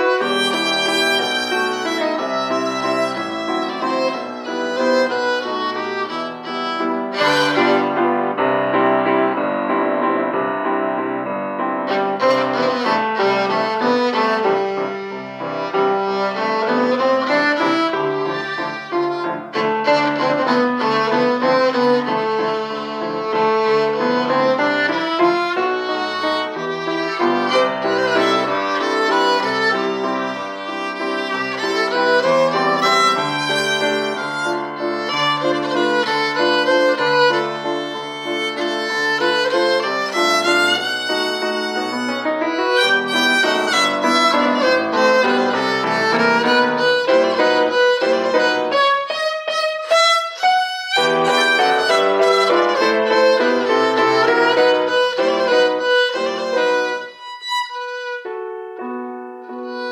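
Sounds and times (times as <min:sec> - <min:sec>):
violin playing classical dance: 0:00.0 - 0:09.8, 0:11.0 - 0:59.9
grand piano accompaniment: 0:00.0 - 0:59.9.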